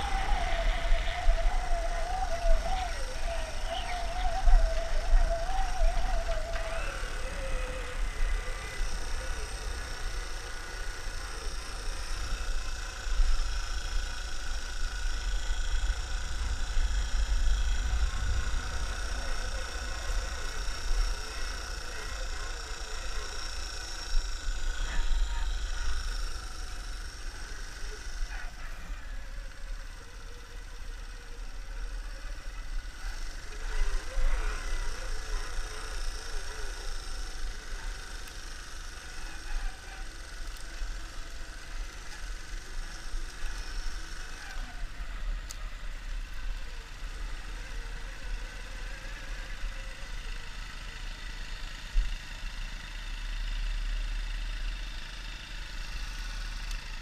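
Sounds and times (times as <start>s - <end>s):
wind noise on microphone: 0.0s - 27.0s
motorbike engine running: 0.0s - 57.0s.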